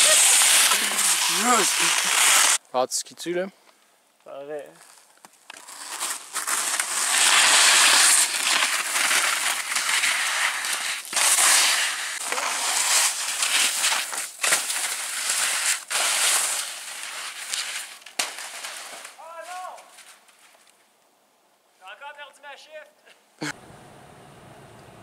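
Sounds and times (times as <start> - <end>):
skis scraping over snow: 0.0 - 2.6, 4.9 - 20.5.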